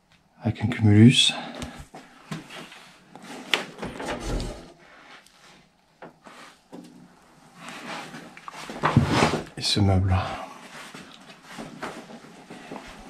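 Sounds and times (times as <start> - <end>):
wooden wardrobe door opening: 3.5 - 4.8.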